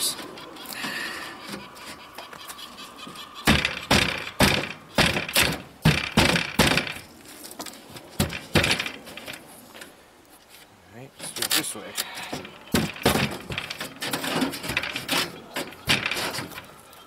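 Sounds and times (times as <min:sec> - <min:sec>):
wooden thumps and knocks: 0:03.4 - 0:09.9, 0:12.3 - 0:16.7.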